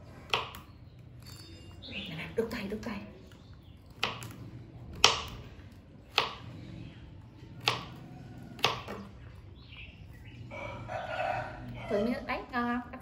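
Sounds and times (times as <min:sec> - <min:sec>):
knife chopping on plastic board: 0:04.0 - 0:05.4, 0:06.1 - 0:06.4, 0:07.6 - 0:08.0, 0:08.6 - 0:09.1.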